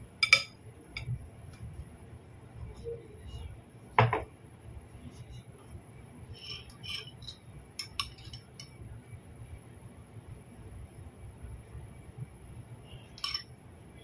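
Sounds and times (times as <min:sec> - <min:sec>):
cutlery clinking against ceramic bowl: 0:00.2 - 0:01.1, 0:06.6 - 0:08.8, 0:13.2 - 0:13.5.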